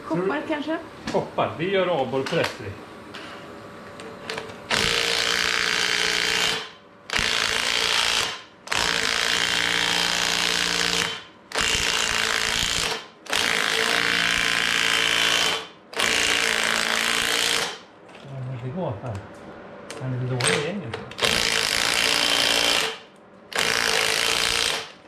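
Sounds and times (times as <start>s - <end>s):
impact wrench hammering: 4.7s - 17.8s, 20.4s - 25.0s.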